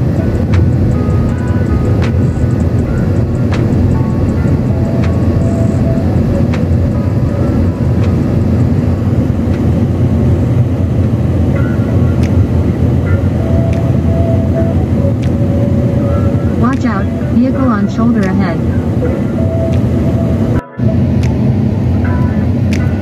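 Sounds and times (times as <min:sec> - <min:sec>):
car road and engine noise: 0:00.0 - 0:23.0.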